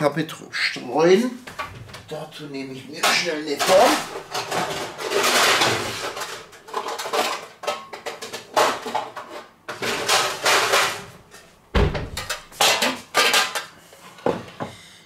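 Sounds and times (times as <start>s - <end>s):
metal pans clattering and scraping: 2.9s - 14.8s
dull thump: 11.8s - 12.2s.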